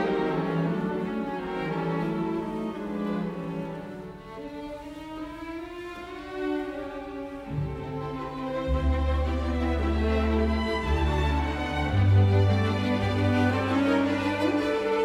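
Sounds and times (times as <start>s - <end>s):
bowed strings playing slow notes: 6.4s - 15.0s.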